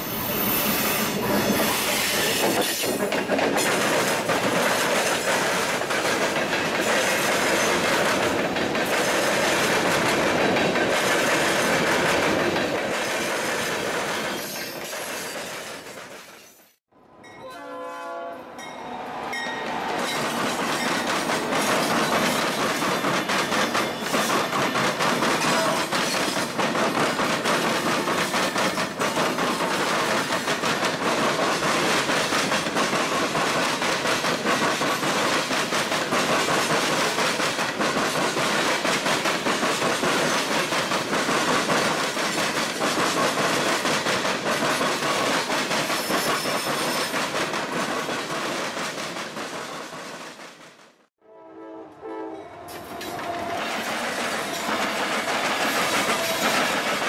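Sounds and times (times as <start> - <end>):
freight train rumbling past: 0.0 - 16.4, 17.0 - 57.0
wheels clacking over rail joints: 1.2 - 16.6, 19.8 - 50.9, 52.7 - 57.0
distant train horn: 17.0 - 20.0, 25.5 - 25.9, 51.2 - 53.7.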